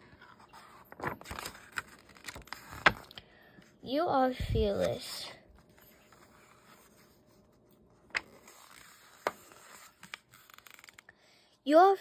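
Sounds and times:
paper pages being turned: 0.1s - 3.2s, 4.7s - 11.1s.

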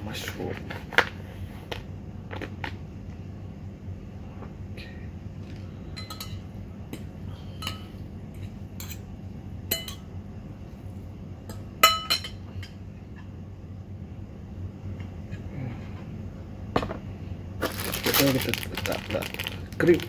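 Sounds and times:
cutlery clinking against ceramic bowl: 9.7s - 10.0s.

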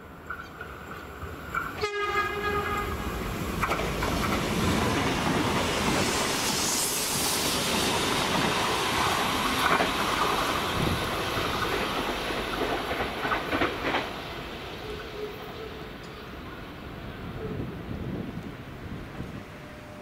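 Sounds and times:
train rushing noise: 0.1s - 20.0s
train wheels clattering over rails: 0.3s - 15.2s.

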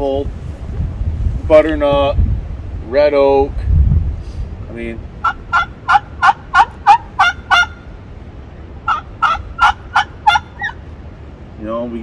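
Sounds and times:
friction turkey call yelps: 5.2s - 8.0s, 8.8s - 10.8s.

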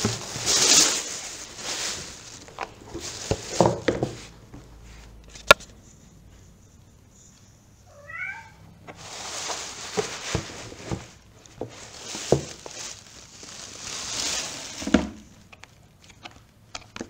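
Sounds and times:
plastic wrapping rustling: 0.0s - 4.4s, 8.9s - 16.2s
cat meowing: 7.9s - 8.7s.

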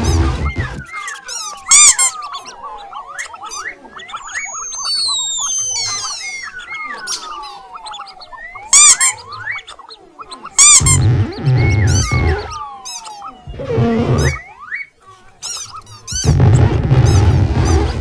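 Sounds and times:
falling whistle-like tones: 0.0s - 9.8s, 10.6s - 15.0s
mouse squeaks and chirps: 0.0s - 18.0s.

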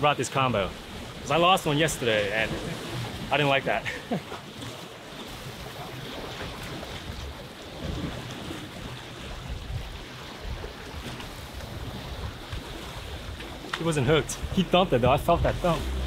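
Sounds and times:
waves splashing against rocks: 0.0s - 16.0s
wind buffeting microphone: 5.6s - 16.0s.

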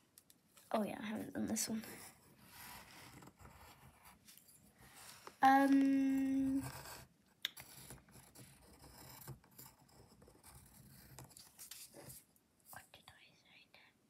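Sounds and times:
pencil scratching on paper: 1.8s - 5.2s, 6.4s - 12.2s.

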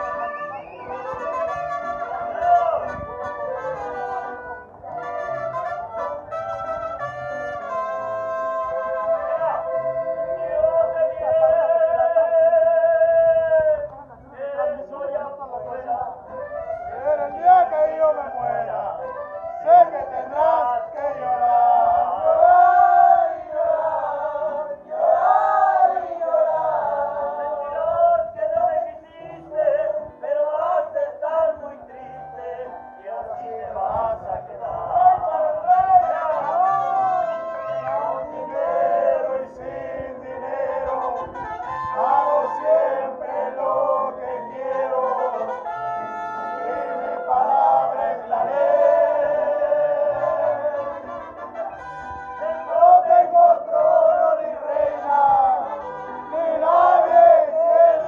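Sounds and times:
violins and accordion playing: 0.0s - 10.7s, 36.1s - 39.4s, 43.8s - 53.1s, 55.0s - 57.4s
accordion: 0.0s - 13.2s, 16.2s - 58.0s
voices singing held notes: 0.0s - 58.0s.

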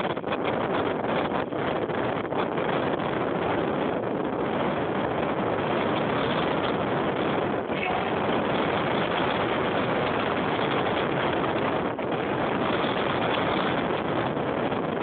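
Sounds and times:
car engine and tyre noise: 0.0s - 15.0s
wind rushing over microphone: 0.0s - 15.0s.

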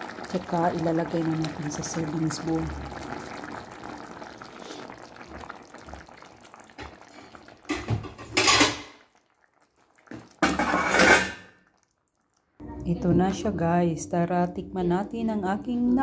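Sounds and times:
stew bubbling in a pot: 0.0s - 12.6s
kitchenware clattering: 7.3s - 9.0s, 10.4s - 11.6s.

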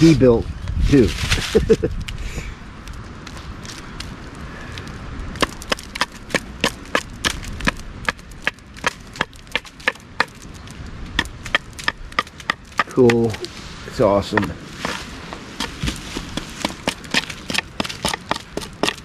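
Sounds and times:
knife chopping wooden stake: 5.4s - 10.5s, 11.1s - 13.5s, 14.3s - 19.0s.

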